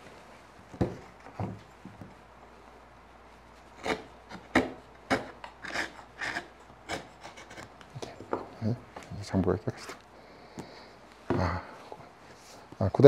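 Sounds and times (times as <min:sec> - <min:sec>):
chisel scraping wood: 0:03.6 - 0:07.8.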